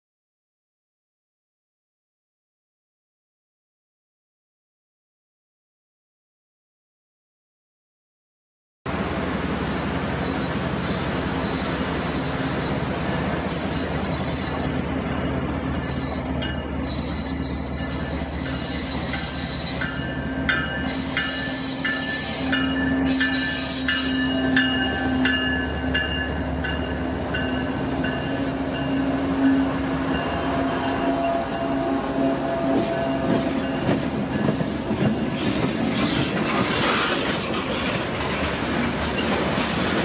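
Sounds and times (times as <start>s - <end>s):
diesel locomotive engines droning: 8.9s - 40.0s
wheels rumbling on rail: 8.9s - 40.0s.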